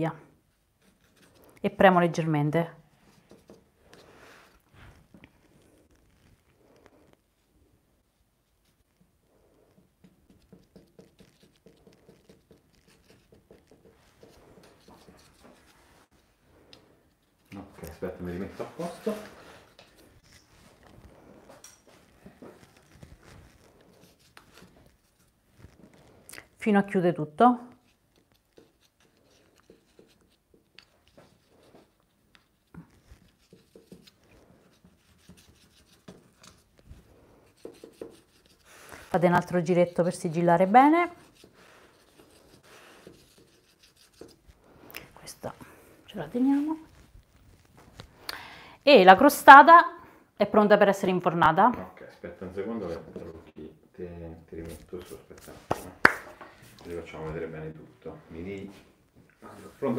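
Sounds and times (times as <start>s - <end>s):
fingertips tapping pastry: 8.5s - 15.9s, 27.7s - 44.6s
fingers pressing pastry on metal pan: 9.8s - 15.7s.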